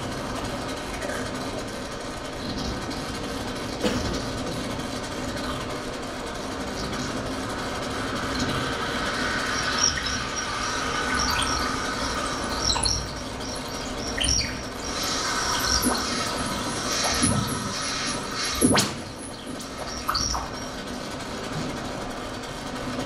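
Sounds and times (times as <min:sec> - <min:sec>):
noisy drone with low hum: 0:00.0 - 0:23.0
high squeaks and chirps: 0:09.1 - 0:20.8.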